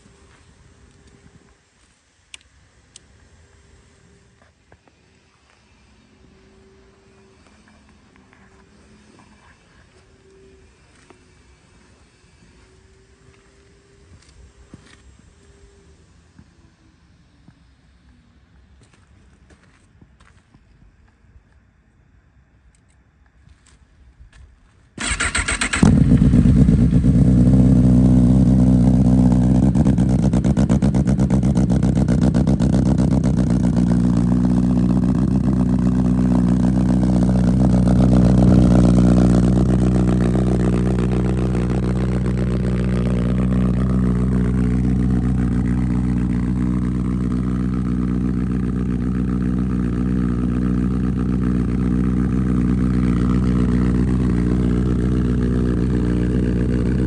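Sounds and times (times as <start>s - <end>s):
motorcycle engine idling: 25.0s - 57.0s.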